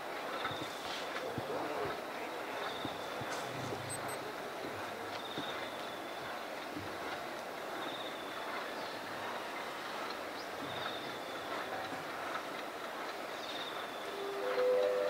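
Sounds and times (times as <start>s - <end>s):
steady background noise: 0.0s - 15.0s.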